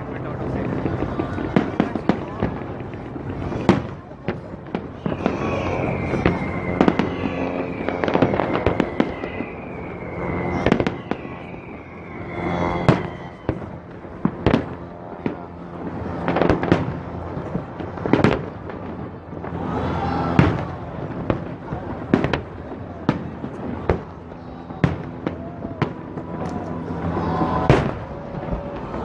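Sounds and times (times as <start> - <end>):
fireworks bangs: 0.0 - 29.0
falling firework whistles: 4.9 - 14.8.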